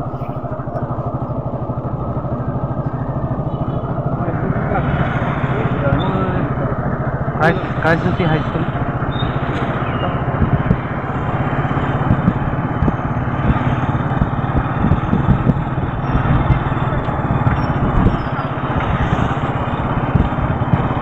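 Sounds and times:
road and wind noise: 0.0 - 21.0
vehicle engine running: 0.0 - 21.0.

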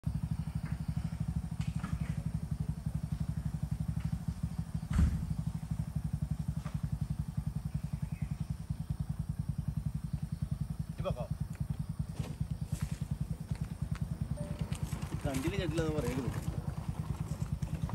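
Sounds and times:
vehicle engine idling: 0.0 - 17.9
thump: 4.8 - 5.4.

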